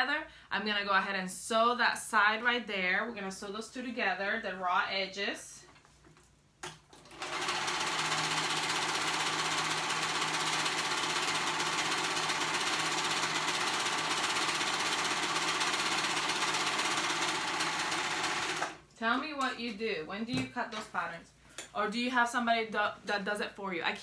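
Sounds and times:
overlock machine stitching: 6.9s - 18.8s.

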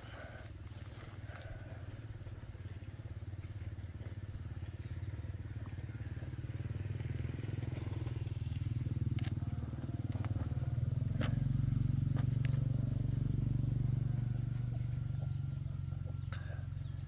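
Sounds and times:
tractor engine running: 0.0s - 17.0s.

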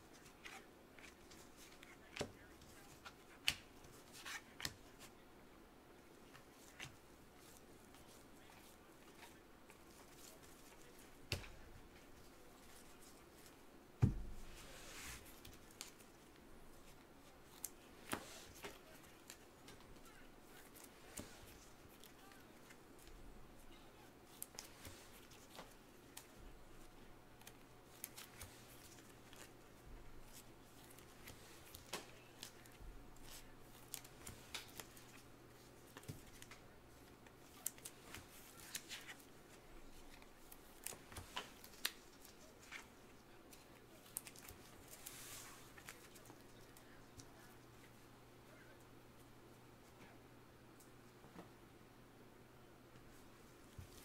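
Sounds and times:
card rustle: 14.4s - 47.5s.

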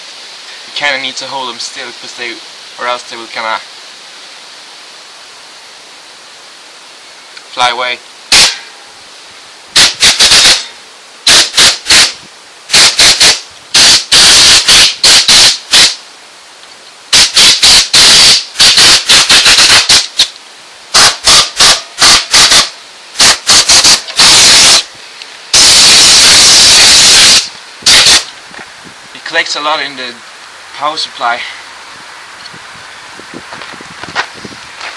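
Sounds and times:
compressed air blow gun blasts: 8.3s - 8.7s, 9.7s - 16.0s, 17.1s - 28.7s.

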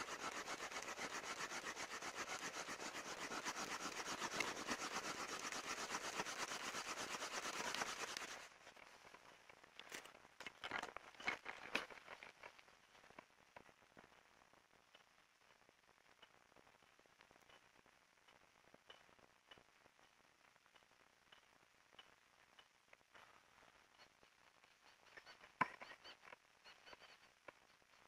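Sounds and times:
bamboo sawing across bamboo: 0.0s - 8.5s.

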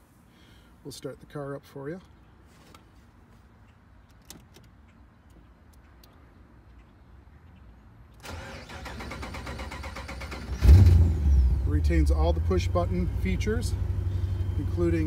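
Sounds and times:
engine starter cranking: 8.2s - 11.0s.

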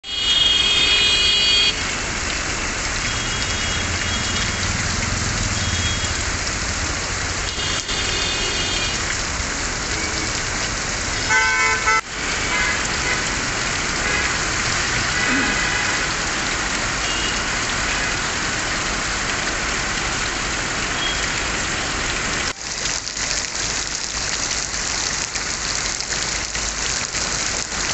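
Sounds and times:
vehicle horns honking: 0.0s - 1.8s, 7.5s - 9.0s, 11.2s - 13.2s
traffic moving: 0.0s - 22.6s
heavy rain hissing on road: 0.0s - 27.9s.

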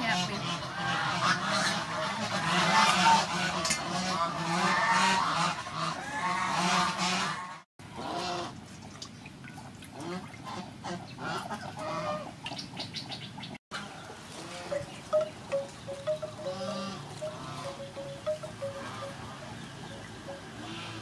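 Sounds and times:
waterfowl calling: 13.8s - 21.0s.

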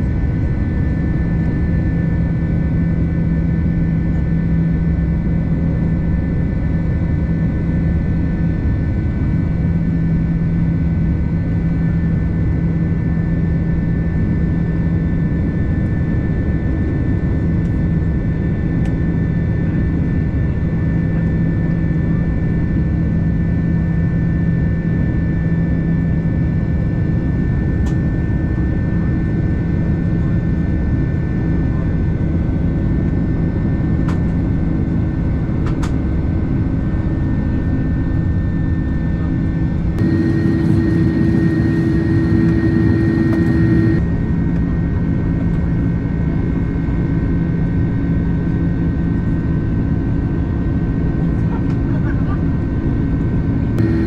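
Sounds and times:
jet airliner cabin rumble: 35.4s - 44.0s, 51.2s - 53.0s, 53.7s - 54.0s.

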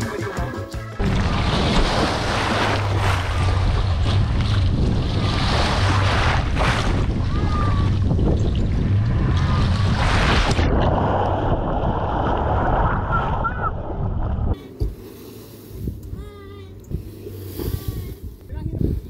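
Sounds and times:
water churning and splashing: 0.9s - 15.2s
wind on microphone: 2.9s - 14.6s, 16.9s - 19.0s
steady low hum: 13.7s - 19.0s.

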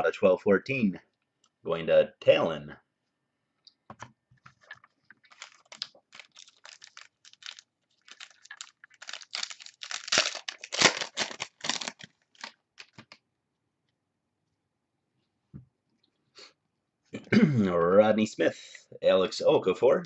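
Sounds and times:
plastic wrapper crinkling and tearing: 4.6s - 13.2s.

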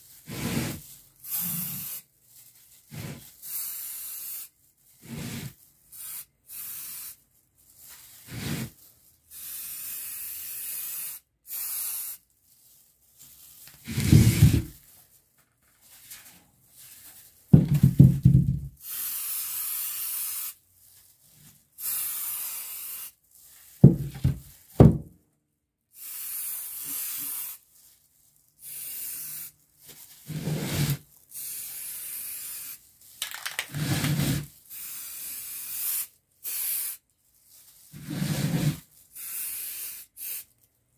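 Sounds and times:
spray paint can hissing: 0.3s - 2.1s, 2.9s - 7.2s, 7.8s - 12.2s, 18.8s - 20.6s, 21.8s - 24.4s, 26.0s - 27.7s, 28.6s - 29.6s, 30.3s - 37.0s, 38.0s - 40.5s
knocks: 17.6s - 18.7s, 23.8s - 25.1s.

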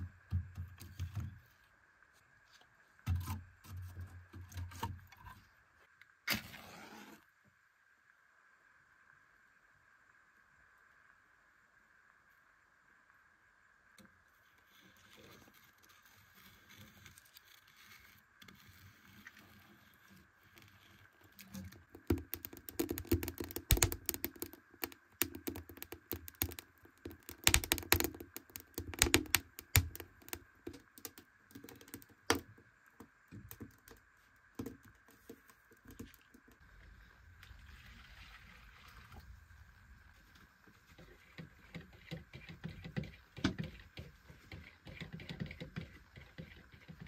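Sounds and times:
hard objects knocking and clicking: 21.8s - 32.6s.

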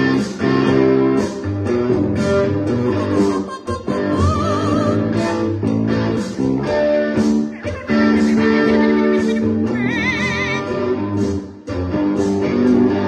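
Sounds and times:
electric guitars playing rock riff: 0.0s - 13.0s
parrot singing: 2.8s - 5.0s, 7.5s - 10.7s.

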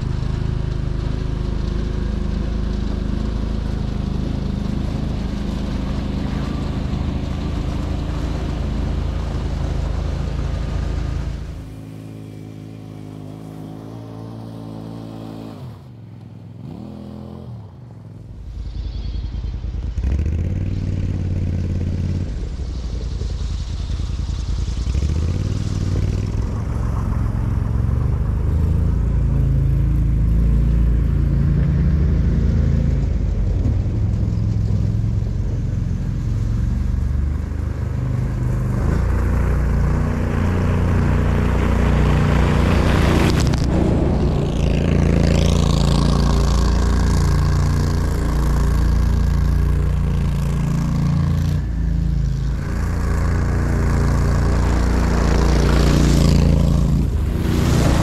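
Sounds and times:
atv engine running under load: 0.0s - 58.0s
loud rushing burst: 41.2s - 48.8s, 52.5s - 58.0s.

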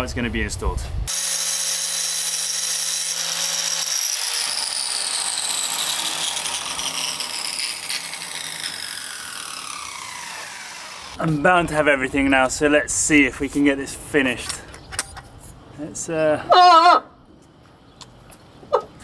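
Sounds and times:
angle grinder whine: 1.1s - 11.4s.

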